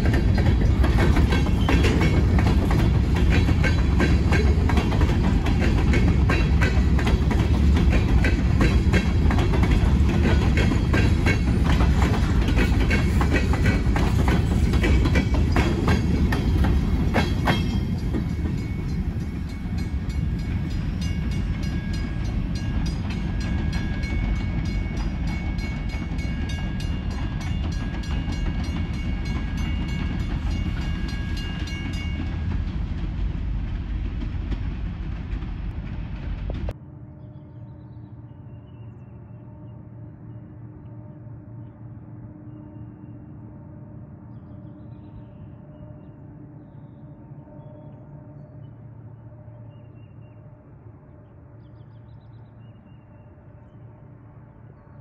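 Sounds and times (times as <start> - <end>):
train wheels clicking over rails: 0.0 - 36.8.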